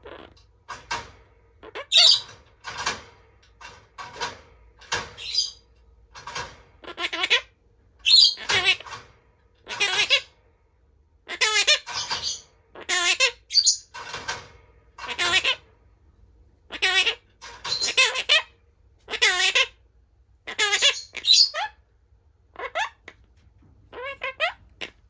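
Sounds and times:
parakeet squawking: 0.0s - 0.5s, 1.5s - 3.0s, 5.0s - 5.7s, 6.3s - 9.0s, 9.6s - 10.4s, 11.2s - 13.9s, 15.0s - 15.7s, 16.6s - 19.8s, 20.4s - 21.9s, 22.5s - 23.3s, 23.9s - 25.0s.

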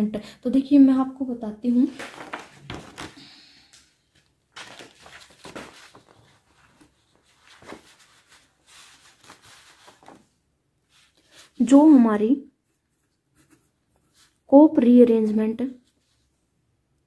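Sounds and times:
paper page rustling: 1.8s - 11.7s.

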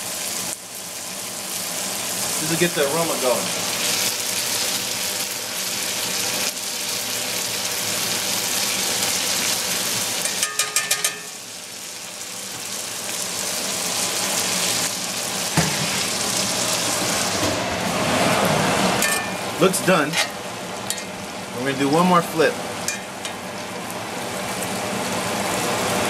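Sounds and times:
steak sizzling in a skillet: 0.0s - 18.2s
metal tongs clicking on pan: 10.2s - 11.3s.

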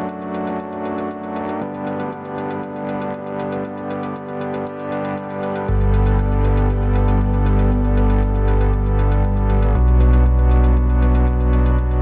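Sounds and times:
electronic music with synthesizer chords: 0.0s - 12.0s.

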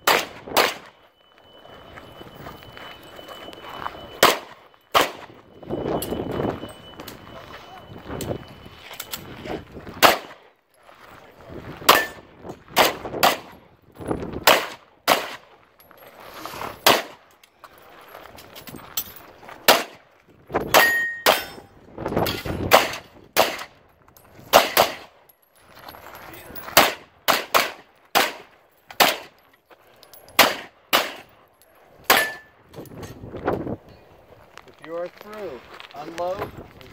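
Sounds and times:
short ringing tone: 0.8s - 9.4s
handgun shots: 4.2s - 5.2s, 10.0s - 10.4s, 12.8s - 13.5s, 14.4s - 15.4s, 19.7s - 20.0s, 22.7s - 23.7s, 24.5s - 25.1s, 26.8s - 29.3s, 30.4s - 31.3s.

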